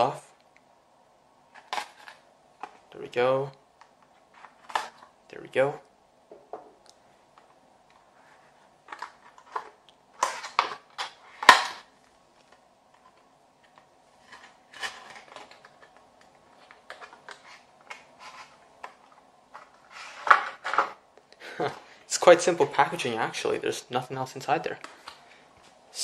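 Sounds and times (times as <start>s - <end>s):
plastic packaging rustling: 4.1s - 5.1s, 7.4s - 21.0s.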